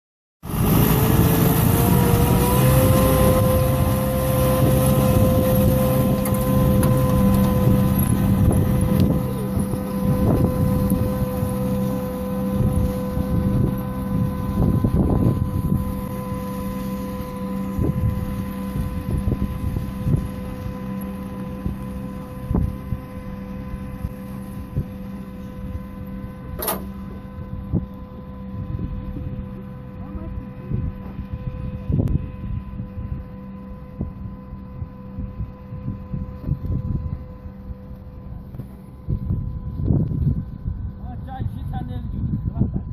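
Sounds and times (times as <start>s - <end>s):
tractor engine running under load: 0.4s - 31.2s.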